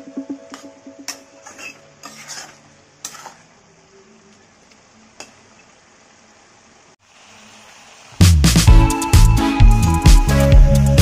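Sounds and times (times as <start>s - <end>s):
faint sizzle: 1.1s - 9.5s
spatula scraping a pan: 1.4s - 3.5s.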